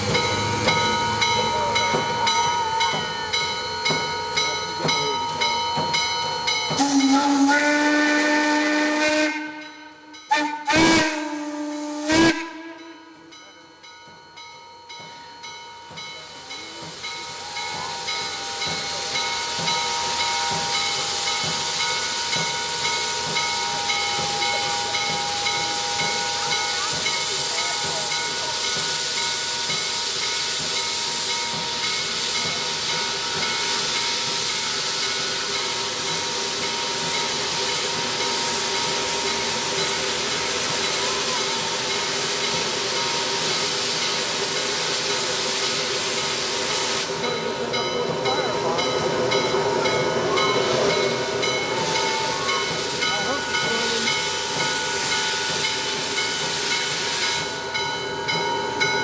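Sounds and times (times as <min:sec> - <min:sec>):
steam whistle blasts: 0:06.7 - 0:13.4, 0:17.2 - 0:30.3, 0:50.2 - 0:57.6
escaping steam hiss: 0:15.1 - 0:59.0.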